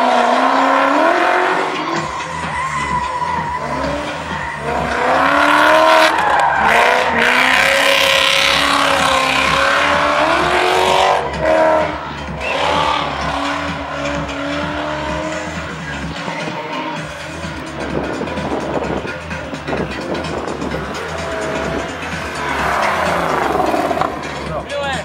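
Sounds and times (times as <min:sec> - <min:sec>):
car engine revving: 0:00.0 - 0:25.0
tyres squealing: 0:01.3 - 0:18.0.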